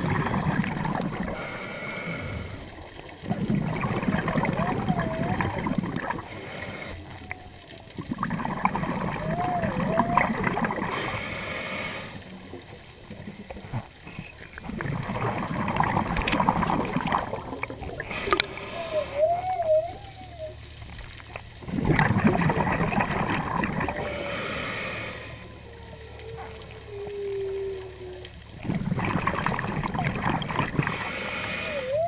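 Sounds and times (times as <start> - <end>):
exhaled bubbles rumbling: 0.0 - 32.0
diver regulator breathing: 1.2 - 2.8, 6.2 - 7.2, 10.8 - 12.4, 18.0 - 19.6, 23.9 - 25.6, 30.8 - 32.0
whale song moans: 3.2 - 11.0, 16.6 - 32.0.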